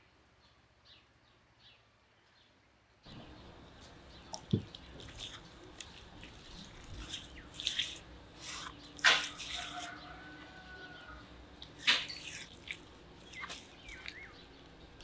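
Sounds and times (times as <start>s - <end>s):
hands smacking and squelching raw meat: 3.7s - 15.0s.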